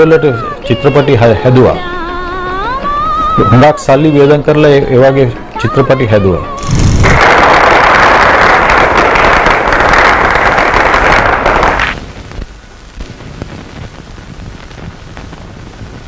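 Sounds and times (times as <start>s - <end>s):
film soundtrack hiss and crackles: 0.0s - 16.0s
group clapping: 6.7s - 12.0s.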